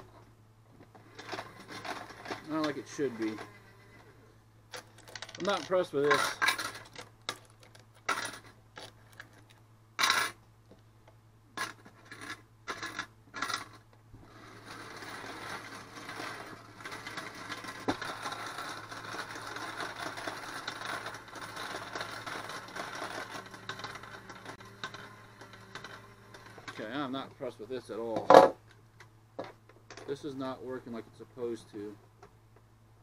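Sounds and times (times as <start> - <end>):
coin sorting machine whirring: 1.0 - 4.1, 4.8 - 7.0, 8.0 - 8.5, 10.0 - 10.4, 11.6 - 27.1
coins clinking: 10.0 - 10.4.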